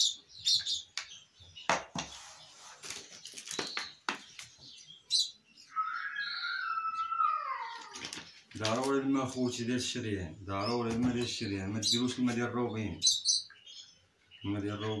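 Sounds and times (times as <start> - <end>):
short high bird chirps: 5.1 - 8.2
tone falling in pitch: 5.7 - 7.9.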